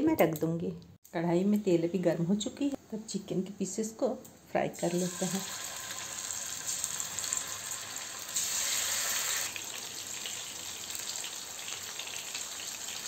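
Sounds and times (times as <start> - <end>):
chicken frying in hot oil: 4.8 - 13.0.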